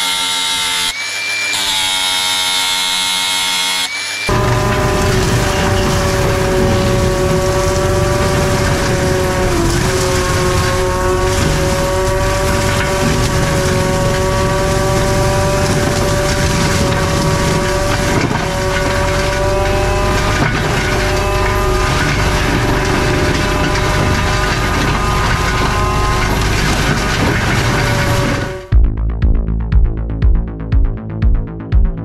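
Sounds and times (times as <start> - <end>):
forestry mulcher whine: 4.0 - 28.8
diesel engine running: 4.3 - 28.9.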